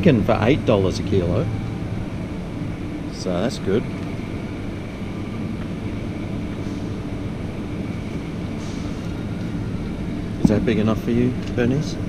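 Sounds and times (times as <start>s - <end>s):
low mechanical hum of refrigerators: 0.0s - 12.0s
faint high tone: 1.2s - 2.6s.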